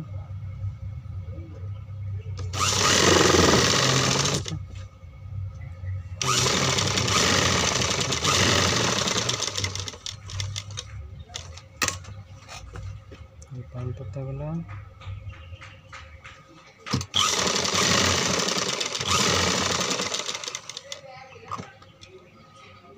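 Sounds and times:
sewing machine stitching: 0:02.4 - 0:04.5, 0:06.2 - 0:10.8, 0:16.9 - 0:20.9.

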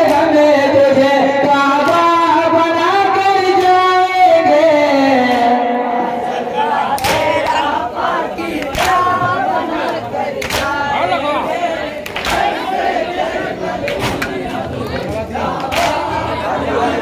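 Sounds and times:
sharp slaps: 0:00.0 - 0:00.3, 0:03.6 - 0:03.9, 0:05.3 - 0:05.6, 0:07.0 - 0:07.5, 0:08.6 - 0:09.2, 0:10.4 - 0:10.8, 0:12.0 - 0:12.6, 0:13.8 - 0:14.4, 0:15.6 - 0:16.1
men singing held notes: 0:00.0 - 0:17.0.

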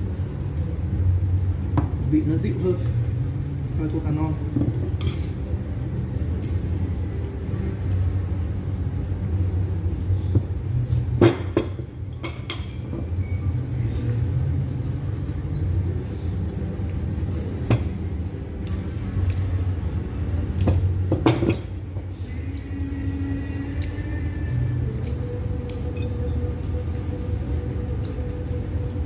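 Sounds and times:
low room rumble: 0:00.0 - 0:29.0
tableware clinking: 0:11.2 - 0:13.4, 0:20.6 - 0:21.8.

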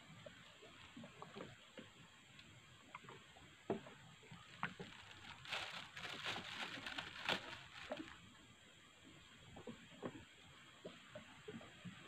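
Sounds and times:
rustling: 0:04.4 - 0:08.2.

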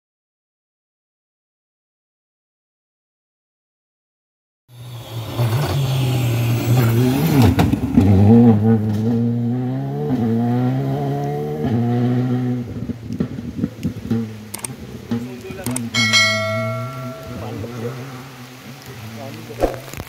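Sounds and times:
rally car engine revving: 0:04.8 - 0:16.0
tyres spraying gravel: 0:15.2 - 0:20.0
sharp crack: 0:19.4 - 0:20.0.

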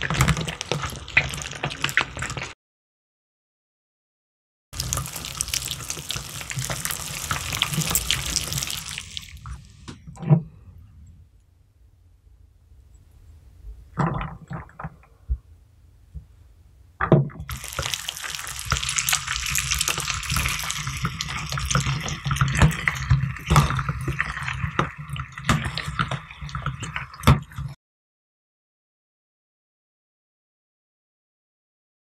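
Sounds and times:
grinder wet squelching and crackling: 0:00.0 - 0:02.6, 0:04.8 - 0:09.7, 0:17.5 - 0:27.8.

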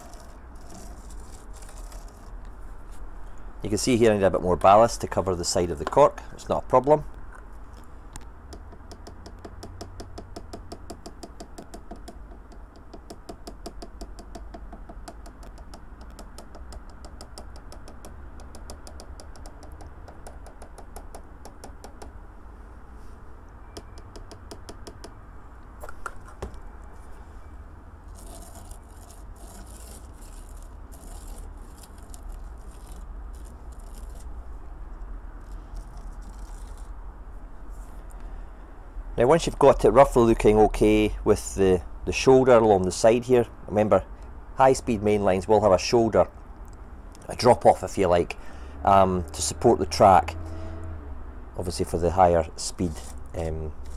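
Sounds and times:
fingertip scraping grains: 0:00.0 - 0:03.0, 0:28.1 - 0:34.4, 0:35.4 - 0:36.9, 0:52.7 - 0:53.9.

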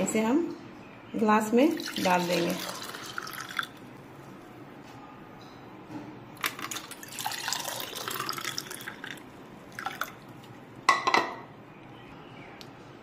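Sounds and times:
juice pouring into glasses: 0:01.7 - 0:03.9, 0:06.4 - 0:10.6.

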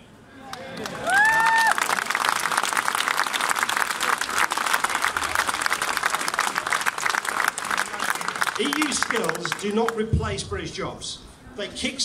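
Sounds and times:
crowd applauding: 0:00.5 - 0:10.0.

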